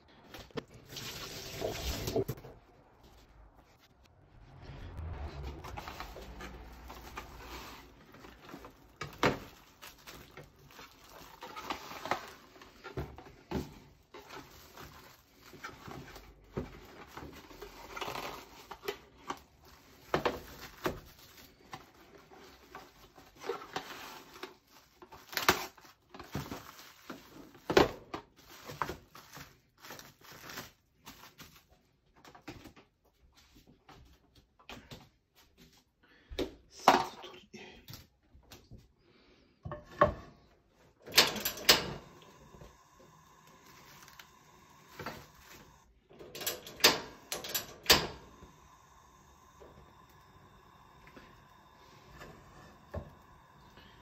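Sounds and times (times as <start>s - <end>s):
cling wrap crinkling: 5.3s - 32.2s, 42.4s - 45.9s.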